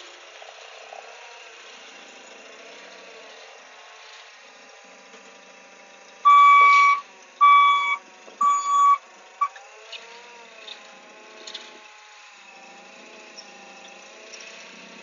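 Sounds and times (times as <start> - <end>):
forklift engine running: 1.6 - 15.0
forklift warning beeps: 6.3 - 9.6.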